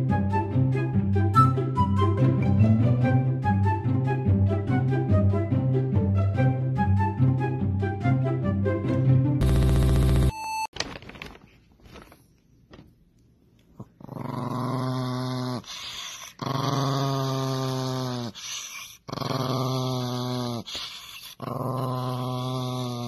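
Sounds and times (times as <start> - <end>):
small dog growling: 13.8 - 23.0.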